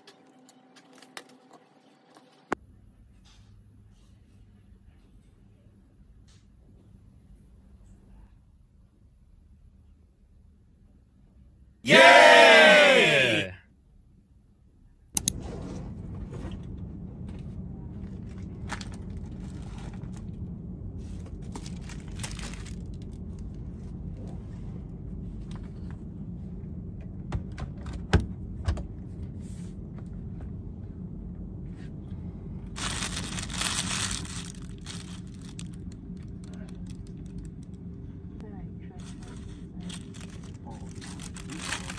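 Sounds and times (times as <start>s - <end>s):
plastic bag crinkling: 32.8s - 37.4s, 39.0s - 41.9s.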